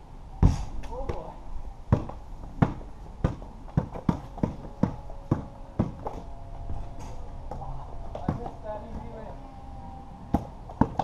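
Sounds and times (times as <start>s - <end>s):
basketball bouncing: 1.9s - 6.1s.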